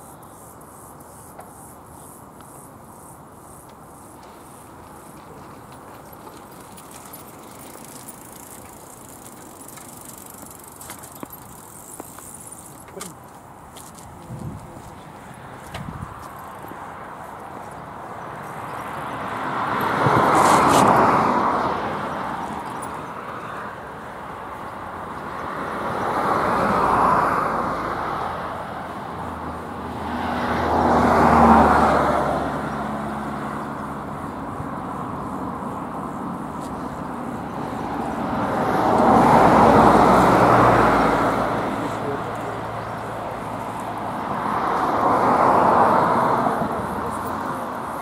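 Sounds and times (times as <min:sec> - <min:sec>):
road vehicles passing: 0:00.0 - 0:48.0.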